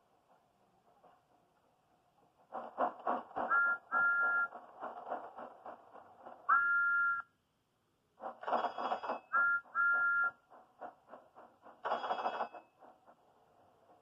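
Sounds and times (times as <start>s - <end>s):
cartoon steam train chuffing: 0.0s - 7.2s, 8.1s - 14.0s
train whistle toots: 3.5s - 4.5s, 6.5s - 7.3s, 9.3s - 10.4s.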